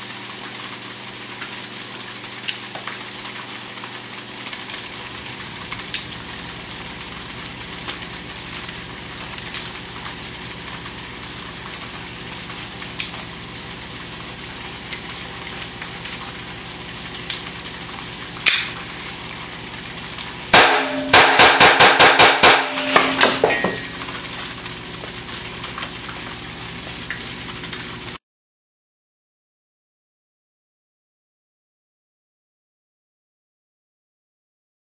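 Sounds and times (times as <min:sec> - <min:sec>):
pistol shots into steel trap: 0:20.5 - 0:23.9
metal ringing: 0:20.6 - 0:21.4, 0:22.5 - 0:24.2.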